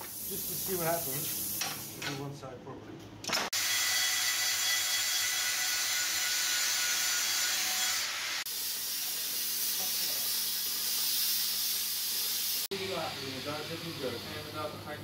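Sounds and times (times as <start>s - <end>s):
angle grinder grinding steel: 3.6s - 14.4s.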